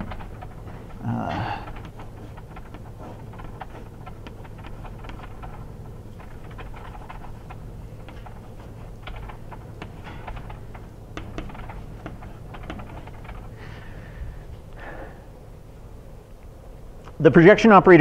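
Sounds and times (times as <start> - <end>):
steady low hum: 0.0 - 18.0
chalk scratching on blackboard: 1.6 - 13.3.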